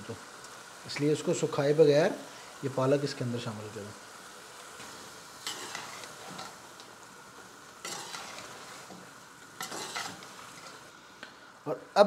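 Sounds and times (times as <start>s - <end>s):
curry sizzling: 0.0s - 12.0s
metal spoon scraping a pot: 5.4s - 6.6s, 7.8s - 9.0s, 9.6s - 10.8s.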